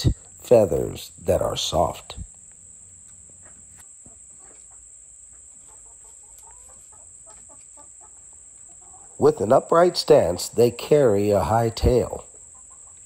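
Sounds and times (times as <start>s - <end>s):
chickens clucking softly: 2.2s - 9.4s, 12.1s - 13.0s.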